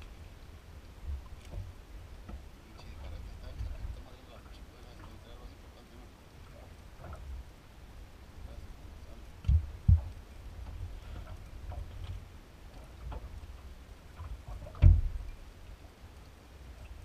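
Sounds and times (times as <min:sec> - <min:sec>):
boat drifting low rumble: 0:00.0 - 0:17.0
dull knocks in a boat: 0:09.4 - 0:13.4, 0:14.2 - 0:15.2.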